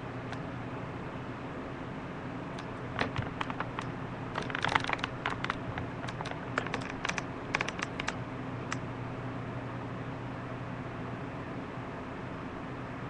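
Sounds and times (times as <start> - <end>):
low electrical hum: 0.0 - 13.0
sharp clicks and scratches: 2.6 - 8.8.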